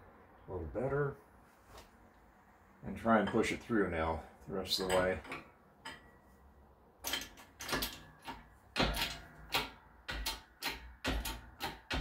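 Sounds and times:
metal clanks of hydraulic press: 7.0s - 12.0s.

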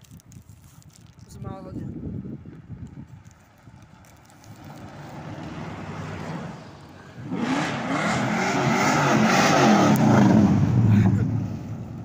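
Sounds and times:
car rolling on gravel: 2.4s - 6.9s
muscle car engine revving: 7.2s - 11.5s.

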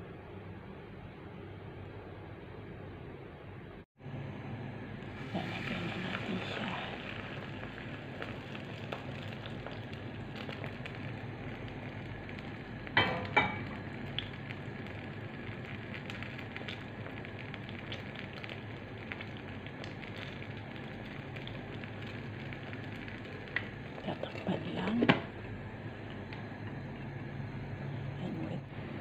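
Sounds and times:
batter sizzling in frying pan: 5.0s - 26.3s.

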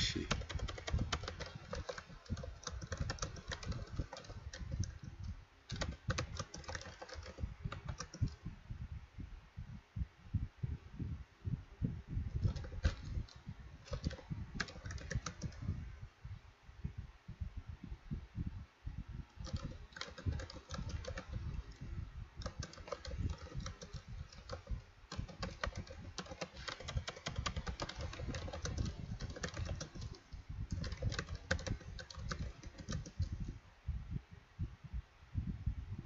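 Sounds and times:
computer keyboard typing: 0.1s - 8.4s, 12.3s - 15.7s, 19.4s - 33.4s.

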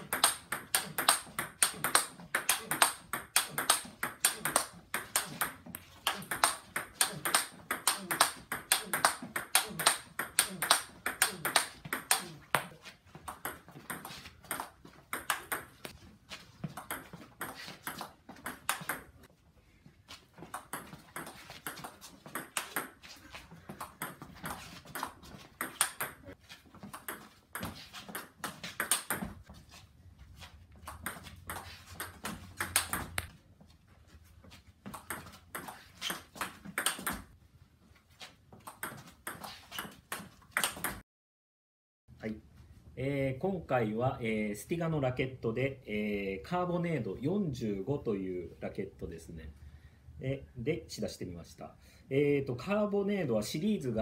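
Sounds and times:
ping pong ball bouncing on table: 0.0s - 12.7s, 13.3s - 15.9s, 16.8s - 19.1s, 20.6s - 23.0s, 23.8s - 26.4s, 27.0s - 29.4s, 30.9s - 33.3s, 35.0s - 37.3s, 38.7s - 41.0s
ping pong ball hitting bats: 0.0s - 16.0s, 16.6s - 19.3s, 20.4s - 29.5s, 30.8s - 33.4s, 34.8s - 37.4s, 38.6s - 41.0s.

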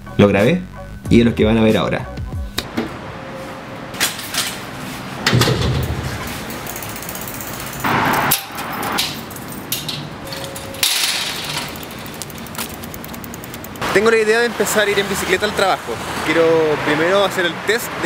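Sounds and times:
knocks and clunks: 5.2s - 6.5s
bicycle freewheel ticking: 6.5s - 7.9s, 11.4s - 13.9s.

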